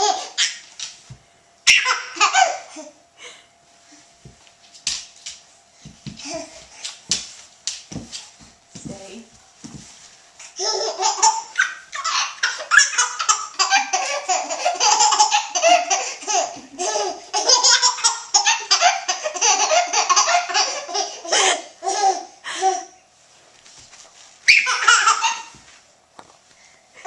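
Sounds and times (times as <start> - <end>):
baby laughing: 0.0 - 0.6, 1.7 - 2.9, 10.6 - 22.9, 24.5 - 25.6.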